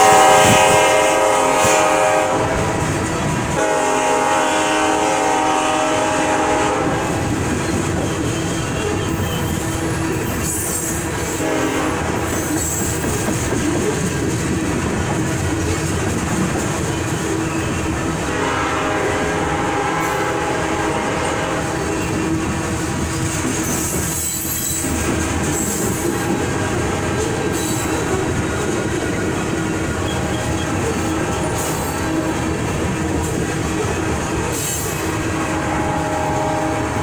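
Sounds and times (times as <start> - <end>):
train wheels on rails: 0.0 - 37.0
train wheels squealing: 7.4 - 11.4, 12.2 - 14.2, 16.6 - 18.2, 23.1 - 26.5, 27.2 - 32.4, 33.2 - 35.2.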